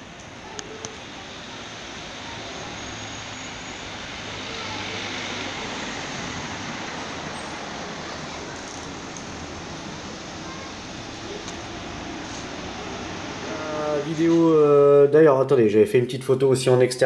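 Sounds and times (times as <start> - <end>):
car driving past close: 0.0 - 14.7
street traffic: 0.0 - 17.0.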